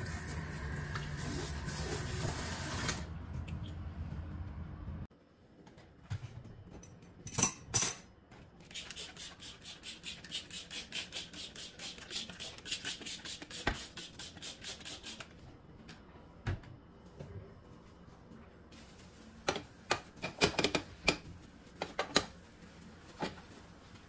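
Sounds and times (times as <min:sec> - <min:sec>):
spray bottle spraying: 0:08.7 - 0:15.2.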